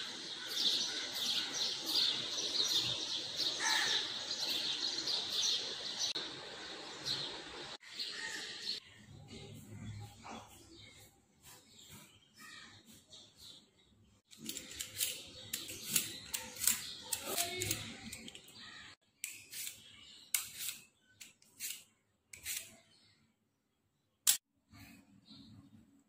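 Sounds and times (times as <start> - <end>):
peeler scraping potato skin: 14.3 - 18.4, 19.2 - 22.9.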